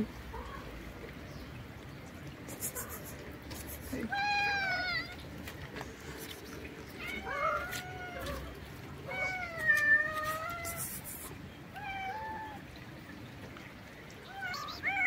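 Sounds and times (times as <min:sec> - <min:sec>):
cat meowing: 0:04.1 - 0:05.2, 0:07.0 - 0:10.9, 0:11.7 - 0:12.6, 0:14.2 - 0:15.0.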